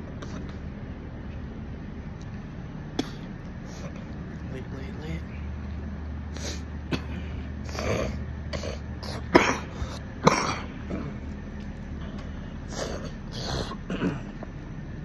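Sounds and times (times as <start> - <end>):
steady low hum: 0.0 - 15.0
man coughing: 2.9 - 4.0, 6.5 - 11.2, 12.7 - 14.5.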